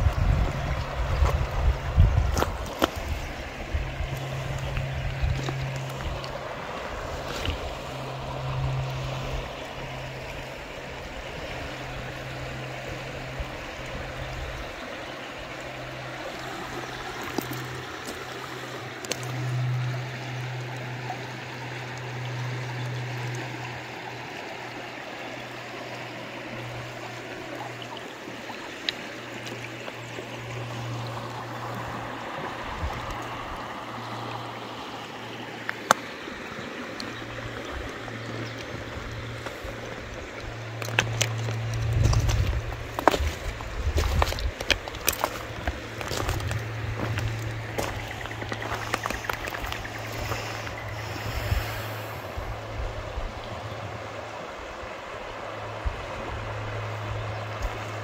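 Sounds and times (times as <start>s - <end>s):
low steady hum: 0.0s - 58.0s
river water rushing: 0.0s - 58.0s.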